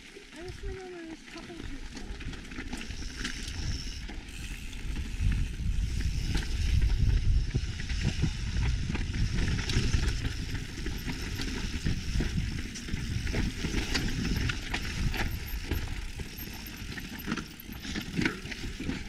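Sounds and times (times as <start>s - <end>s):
bike clicks and rattles: 0.2s - 19.0s
bike tyres on loose stones: 0.3s - 19.0s
wind rumble on microphone: 2.9s - 17.2s.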